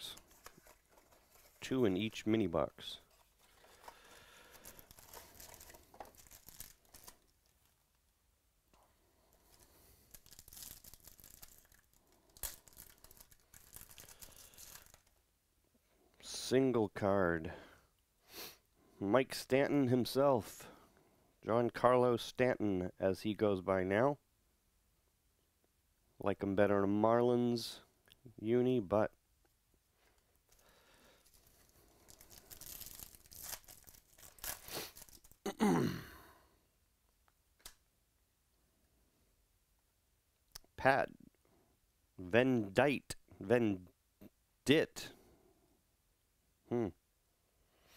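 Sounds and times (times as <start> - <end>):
foil wrapper crinkling: 0.1 - 1.8, 3.0 - 7.8, 9.3 - 15.2, 30.5 - 35.5
foil wrapper ripping: 3.4 - 7.7, 9.5 - 15.1, 31.3 - 35.4.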